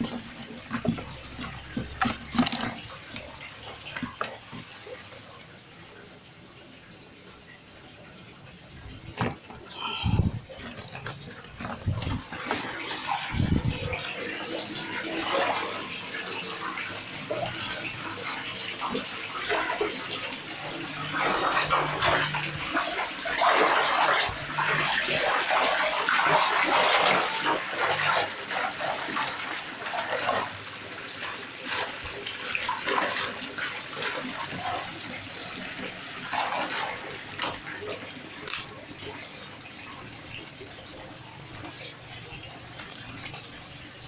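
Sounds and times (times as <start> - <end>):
fish thrashing in a net: 0.0 - 5.0, 9.0 - 16.8
water splashing and sloshing: 0.0 - 44.0.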